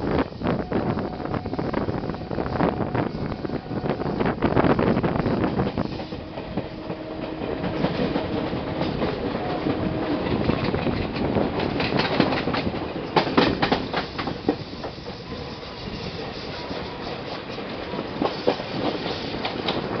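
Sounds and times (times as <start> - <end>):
train wheels rumbling on rails: 0.0 - 20.0
wheels clicking over rail joints: 5.2 - 20.0.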